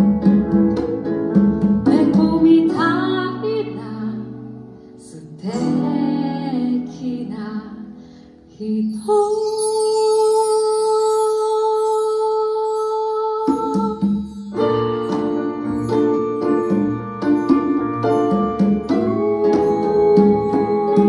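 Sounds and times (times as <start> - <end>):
woman singing: 1.8 - 14.3, 18.8 - 21.0
acoustic guitar strumming: 14.2 - 21.0.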